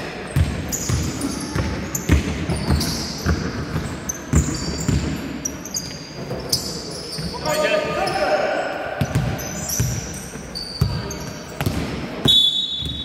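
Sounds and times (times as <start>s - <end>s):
sneakers squeaking on court: 0.2s - 13.0s
basketball bouncing: 0.4s - 5.2s, 9.0s - 13.0s.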